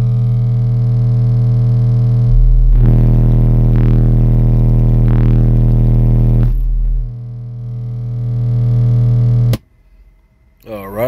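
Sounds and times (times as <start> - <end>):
loud subwoofer bass test tone: 0.0 - 9.6.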